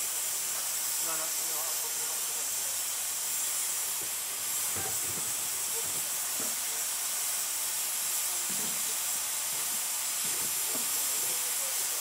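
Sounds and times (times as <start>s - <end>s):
steam hissing: 0.0s - 12.0s.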